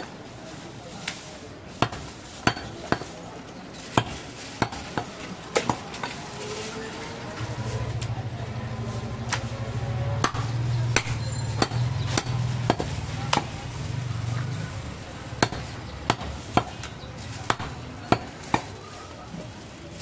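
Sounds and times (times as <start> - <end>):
heavy knife chopping on wood block: 1.8 - 3.1, 3.9 - 6.2, 10.2 - 13.6, 15.4 - 18.7.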